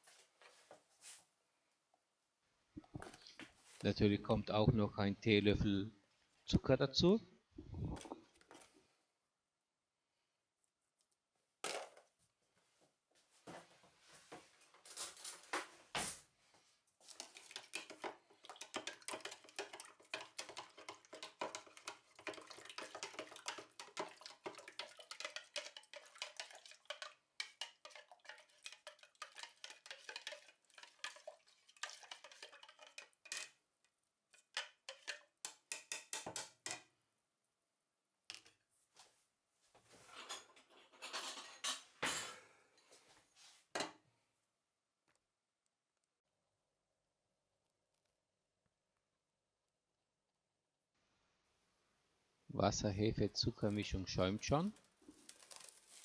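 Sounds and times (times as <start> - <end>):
spoon clinking and scraping in cup: 17.1 - 33.6, 34.4 - 36.8.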